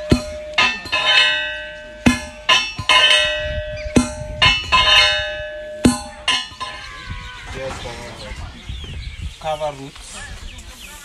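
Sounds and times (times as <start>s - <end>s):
pestle clanging in metal mortar: 0.0s - 7.2s.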